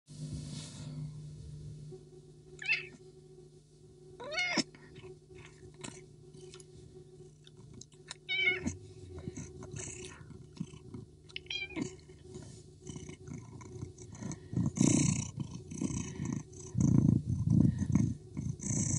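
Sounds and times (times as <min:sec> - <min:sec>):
cat meowing: 0:02.6 - 0:03.0, 0:04.2 - 0:04.7, 0:08.2 - 0:08.8, 0:11.4 - 0:11.8
cat purring: 0:04.2 - 0:18.9.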